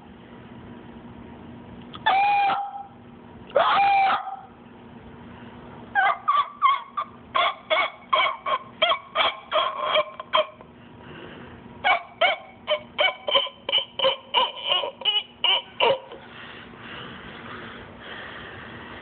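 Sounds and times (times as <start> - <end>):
cockatoo honking calls: 2.0 - 4.6, 6.0 - 10.6, 11.8 - 16.2.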